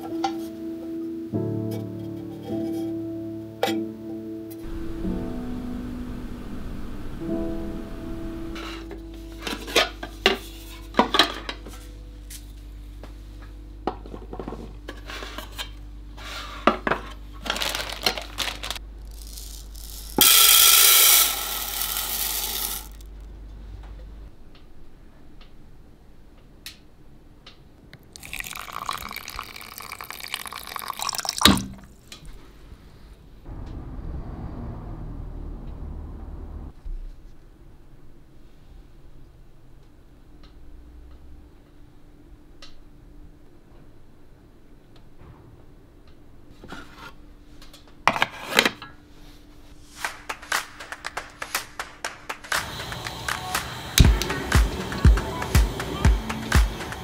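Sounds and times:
water pouring into metal tin: 19.2 - 23.0, 28.2 - 32.0.

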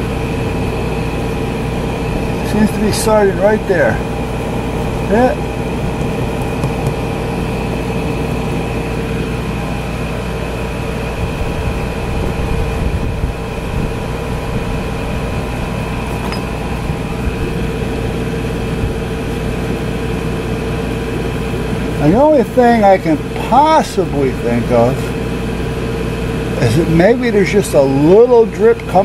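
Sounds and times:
air conditioner humming: 0.0 - 29.0.

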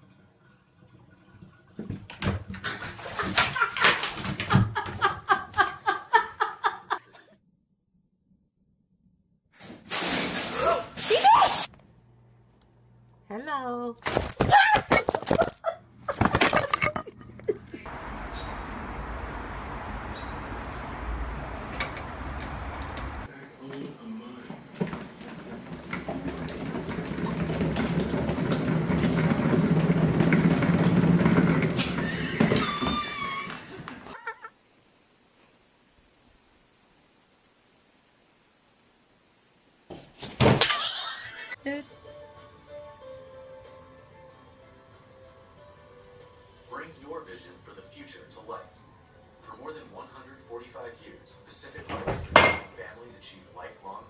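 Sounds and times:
person laughing hard: 3.1 - 7.3
exercise wheel rumbling: 19.1 - 34.2.

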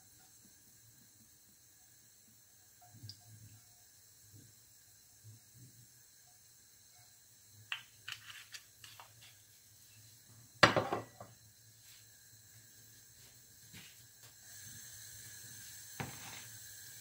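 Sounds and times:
kitchenware clatter: 10.6 - 11.3
kitchenware clicks and knocks: 10.6 - 11.3.

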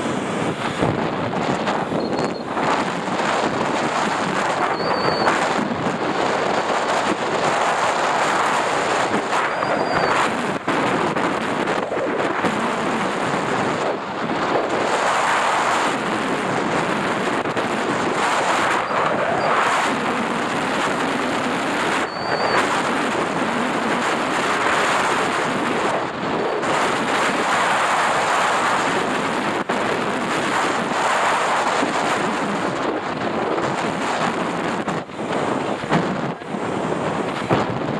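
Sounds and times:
motorcycle engine and road noise: 0.0 - 37.9
wind rushing over microphone: 0.0 - 37.9.

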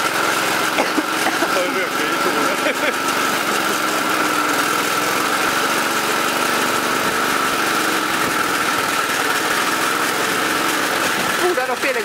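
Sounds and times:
single-cylinder engine running: 0.0 - 12.0.

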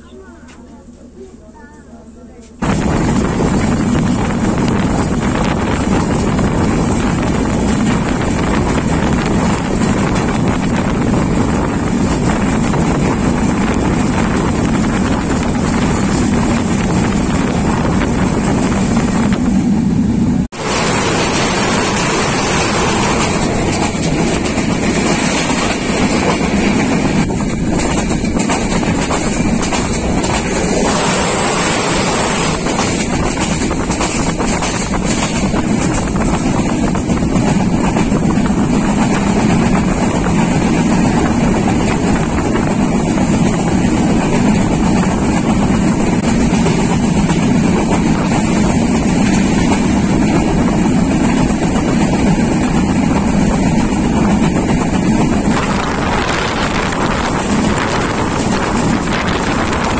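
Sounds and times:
train rumbling on track: 0.0 - 59.9
wind buffeting microphone: 2.6 - 59.9.

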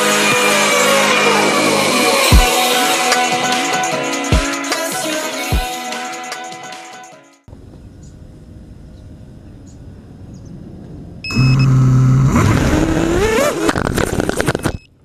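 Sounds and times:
outdoor background noise: 7.5 - 15.0
drone motors whining: 11.2 - 14.9.

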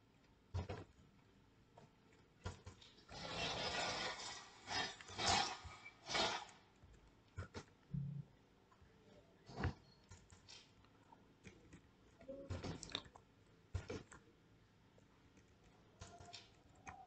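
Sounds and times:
keyboard and mouse clicks: 15.3 - 17.0.

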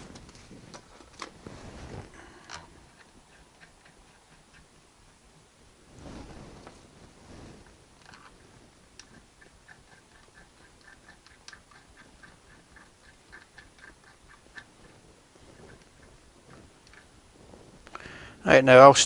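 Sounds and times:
hands rustling and handling: 0.0 - 4.6, 5.9 - 11.6.

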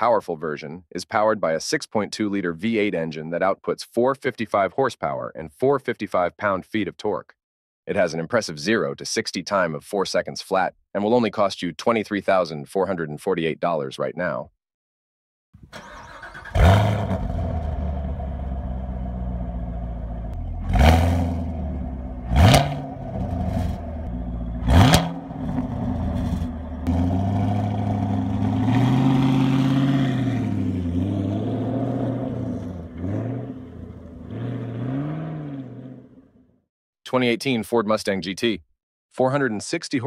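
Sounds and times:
car engine revving and idling: 15.8 - 36.3.

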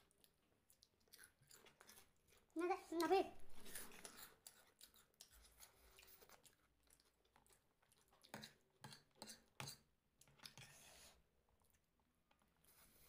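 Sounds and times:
chewing crunchy snack: 0.0 - 2.6, 3.5 - 10.7.

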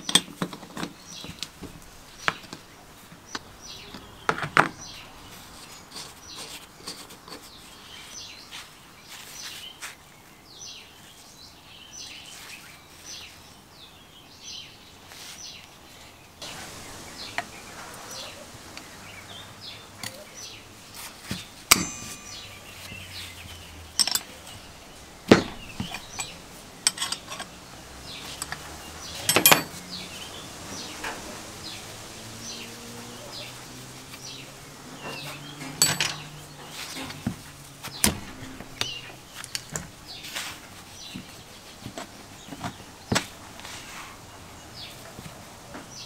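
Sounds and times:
metallic clanks and clicks: 21.3 - 29.8, 35.0 - 39.9.

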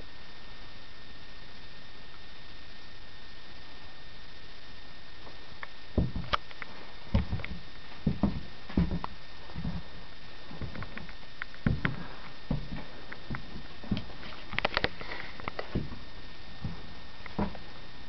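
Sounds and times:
faint high whine: 0.0 - 18.0
steady hiss: 0.0 - 18.0
soft thumps and clicks: 6.0 - 9.9, 10.5 - 17.7.

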